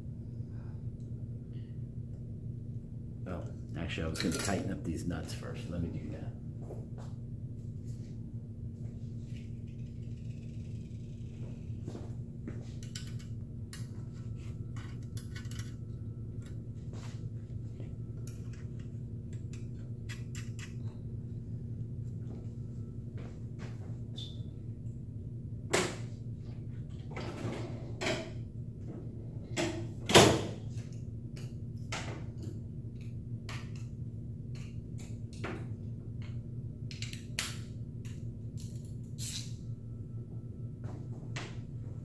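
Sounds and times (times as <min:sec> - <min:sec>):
steady low hum: 0:00.0 - 0:42.0
hand tools and metal parts clicking: 0:14.8 - 0:15.8, 0:38.6 - 0:39.6.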